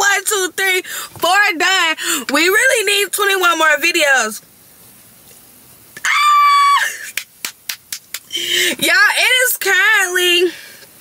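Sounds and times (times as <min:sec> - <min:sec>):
woman squealing: 0:06.0 - 0:07.1
hand claps: 0:07.1 - 0:08.3.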